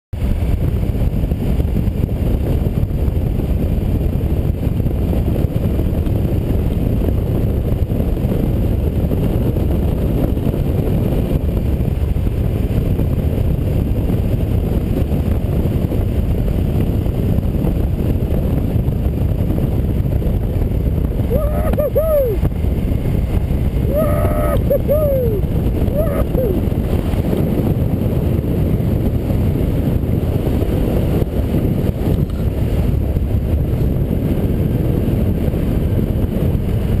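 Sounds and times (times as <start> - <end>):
wind buffeting microphone: 0.2 - 37.0
motorcycle engine drone: 19.6 - 37.0.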